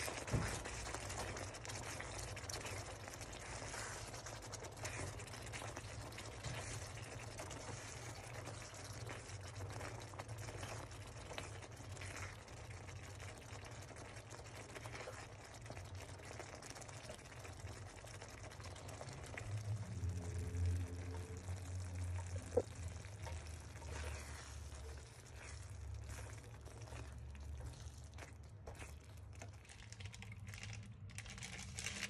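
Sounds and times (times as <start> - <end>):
sauce bubbling in a pan: 0.0 - 31.2
low steady hum: 18.2 - 32.0.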